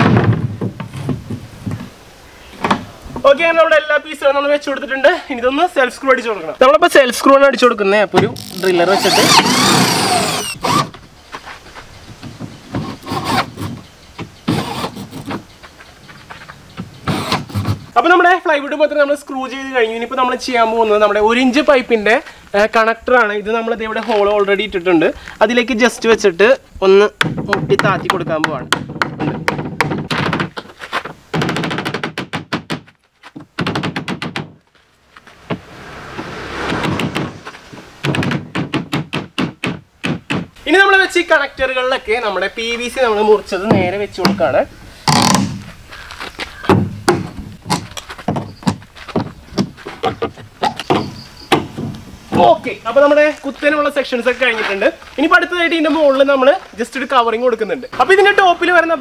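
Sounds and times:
electric drill driving screws into wood: 8.4 - 11.0, 14.5 - 15.2, 17.1 - 17.8
rush of noise: 35.0 - 38.4.

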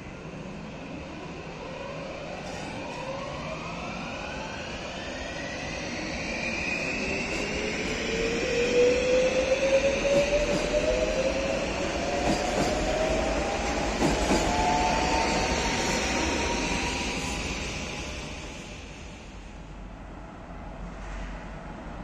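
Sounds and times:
train wheels rumbling on rails: 2.3 - 19.6.

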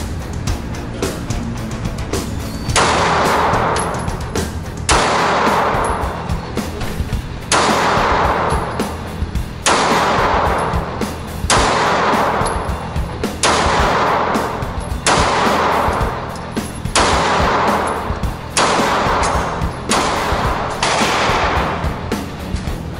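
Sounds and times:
rock music: 0.0 - 22.9
handgun shots: 2.7 - 6.3, 7.5 - 9.0, 9.6 - 12.8, 13.4 - 22.6.

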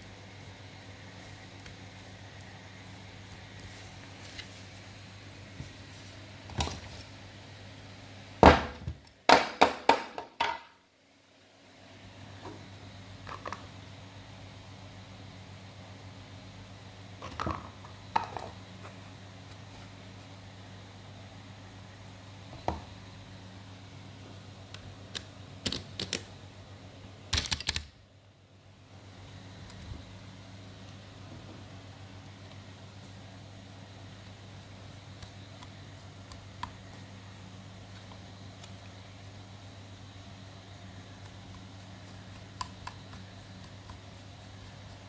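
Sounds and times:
steady low hum: 0.0 - 9.2, 10.7 - 45.0
plastic parts clicking: 25.2 - 26.3, 27.3 - 27.9.

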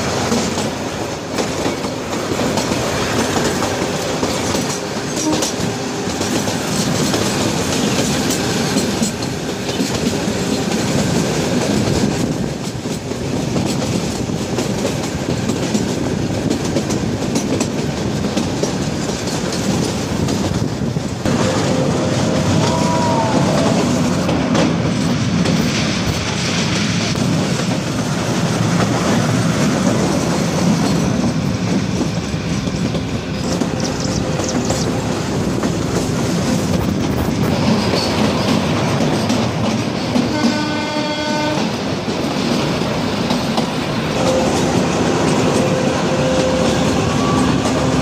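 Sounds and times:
train wheels clattering on rails: 0.0 - 48.0
train horn blast: 5.1 - 6.0, 21.3 - 24.3, 40.3 - 41.8, 44.2 - 48.0.

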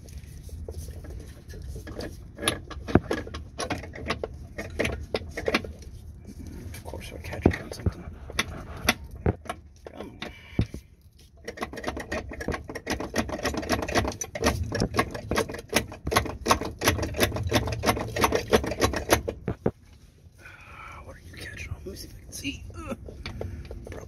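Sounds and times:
metal cable clicking and rattling: 0.0 - 19.8.

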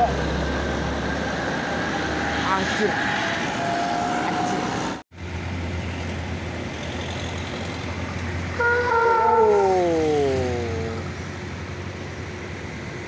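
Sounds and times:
heavy traffic: 0.0 - 13.0
bus engine idling: 5.2 - 13.0
bus horn: 8.6 - 9.6.

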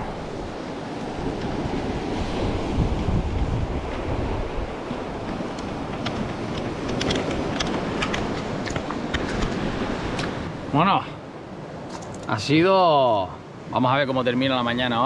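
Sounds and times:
waves washing against rocks: 0.0 - 10.7
wind buffeting microphone: 0.0 - 12.5.

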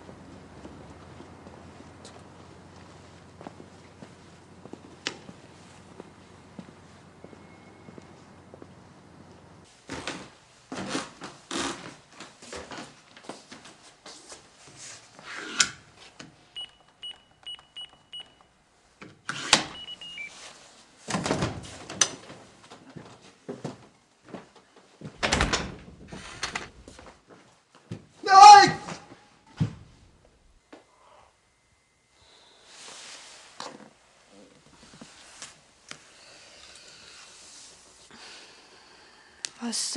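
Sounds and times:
footsteps: 0.0 - 10.2
keypad lock beeping: 16.6 - 18.5, 19.7 - 20.3.

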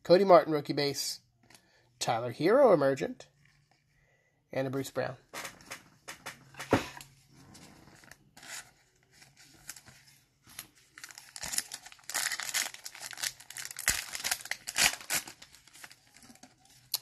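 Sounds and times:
wrapper crinkling: 7.9 - 17.0
card pack wrapper tearing: 10.9 - 17.0.

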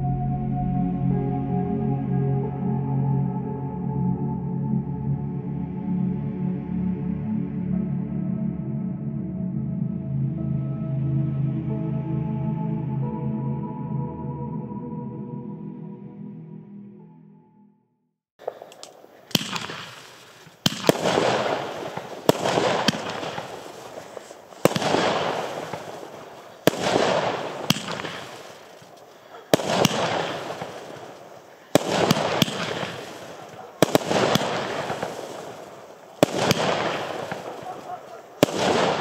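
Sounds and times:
firework bangs: 18.4 - 39.0
rushing hiss: 18.5 - 39.0.

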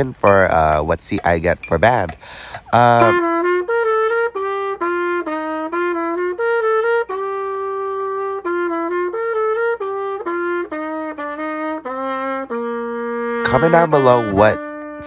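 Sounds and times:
trumpet melody: 0.0 - 0.8, 2.8 - 15.0.

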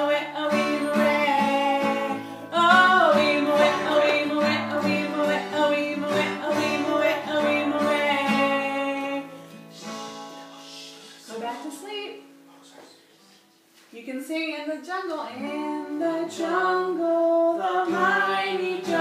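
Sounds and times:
woman singing: 0.0 - 11.8, 14.0 - 19.0
acoustic guitar strumming: 0.0 - 12.6, 17.7 - 19.0.

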